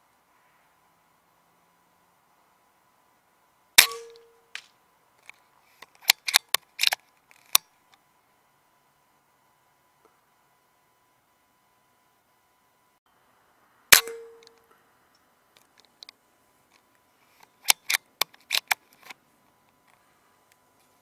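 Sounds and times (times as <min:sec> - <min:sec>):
rifle shot: 0:03.8 - 0:04.7, 0:13.9 - 0:14.4.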